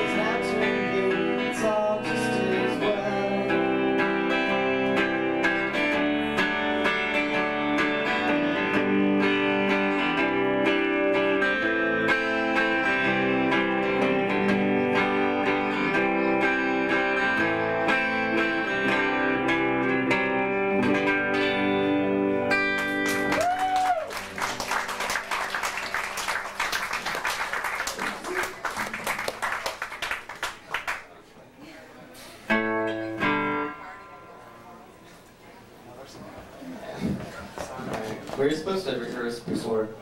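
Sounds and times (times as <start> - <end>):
live band with guitars: 0.0 - 40.0
audience clapping: 22.7 - 31.2.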